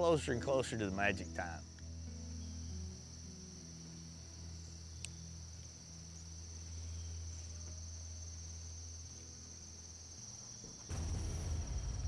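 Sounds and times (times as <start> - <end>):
insect chorus chirring: 0.0 - 12.0.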